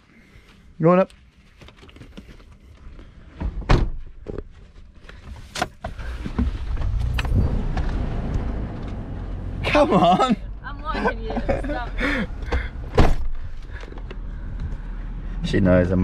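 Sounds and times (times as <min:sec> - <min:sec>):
car door thump: 0:03.5 - 0:04.0, 0:12.9 - 0:13.4.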